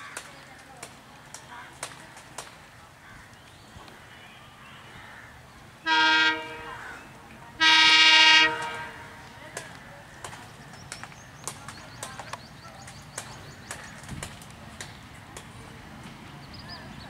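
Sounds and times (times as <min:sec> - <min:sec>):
locomotive air horn blasts: 0:05.8 - 0:06.8, 0:07.6 - 0:09.2.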